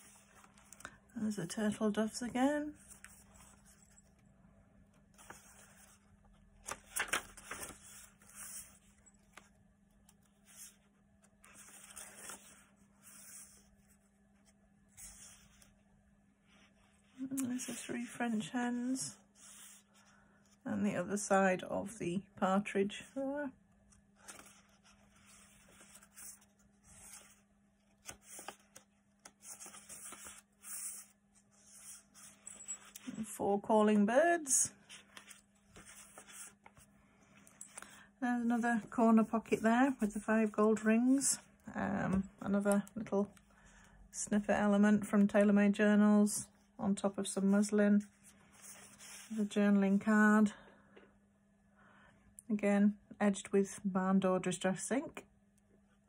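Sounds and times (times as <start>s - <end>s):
paper pages rustling: 5.0s - 15.8s, 24.2s - 33.2s, 34.7s - 36.9s, 48.0s - 49.4s.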